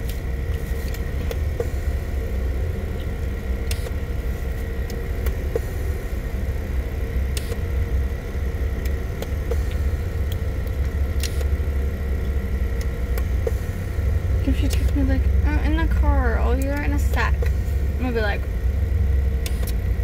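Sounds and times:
car engine idling: 0.0 - 20.0.

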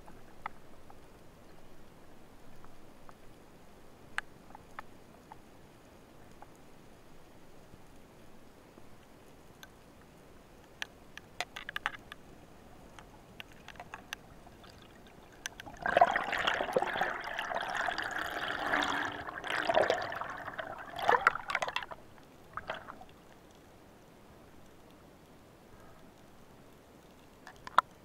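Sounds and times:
faint clicks: 0.0 - 1.9, 4.1 - 15.9, 20.6 - 28.0
underwater air bubbles gurgling: 13.8 - 23.2.

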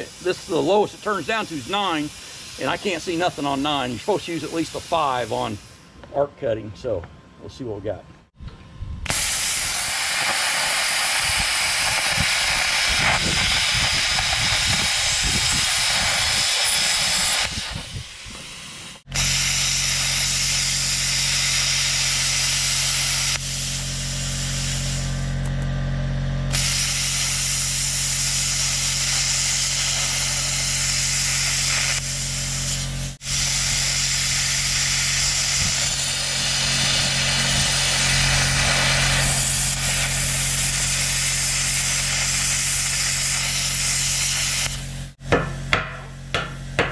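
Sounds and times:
plasma cutter hissing: 0.0 - 5.9, 9.1 - 25.3, 26.5 - 45.2
steady low hum: 0.0 - 46.9.

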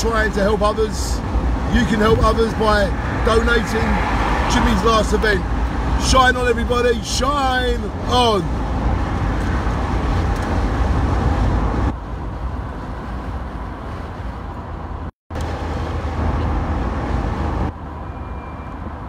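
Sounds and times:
car wind and road noise: 0.0 - 19.0.

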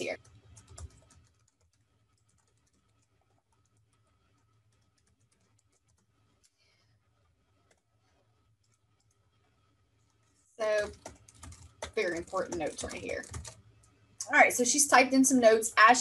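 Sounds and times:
typing on computer keyboard: 0.0 - 6.6, 10.1 - 14.0.

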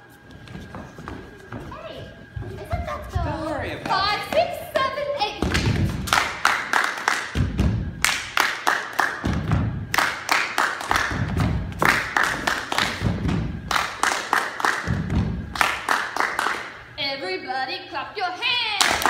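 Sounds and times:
quick sharp claps: 5.4 - 16.8
heavy stomps on stage floor: 10.9 - 13.7, 14.8 - 15.6.

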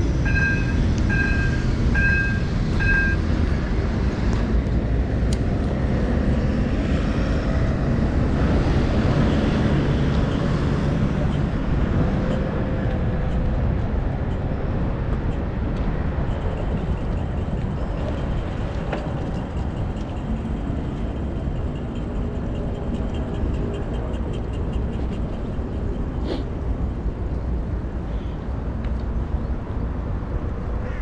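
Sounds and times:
wind rushing over microphone: 0.0 - 23.0
traffic noise: 0.0 - 31.0.

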